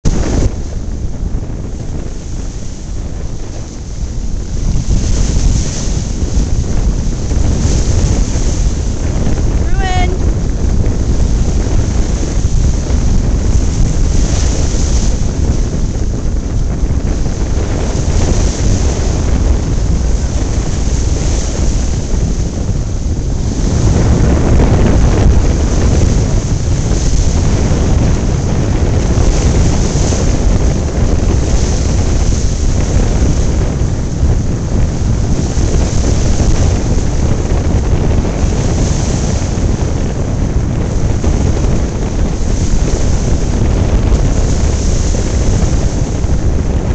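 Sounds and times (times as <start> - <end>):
surf washing through rocks: 0.0 - 46.9
wind buffeting microphone: 0.0 - 46.9.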